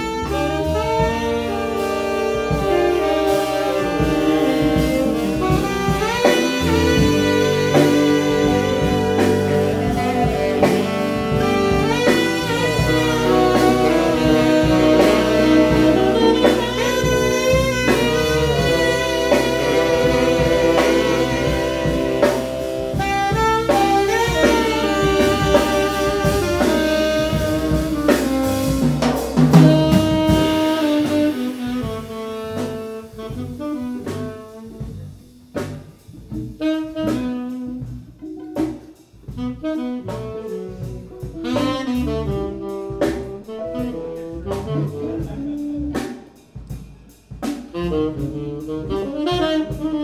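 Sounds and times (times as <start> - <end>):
keyboard: 0.0 - 30.4
tenor saxophones in harmony: 0.0 - 46.4, 47.4 - 50.0
drum kit with cymbals: 0.0 - 50.0
electric bass: 0.0 - 50.0.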